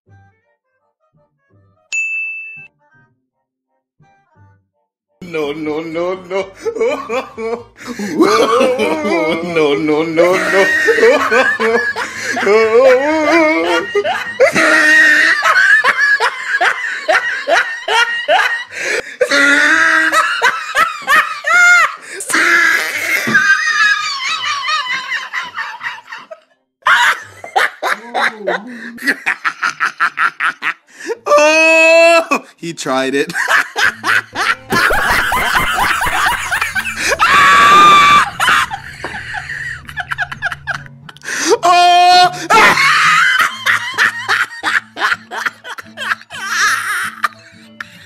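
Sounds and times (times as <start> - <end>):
person laughing hard: 6.3 - 32.4, 33.3 - 48.0
high-pitched scream: 36.8 - 40.6
squealing cries: 36.8 - 40.8.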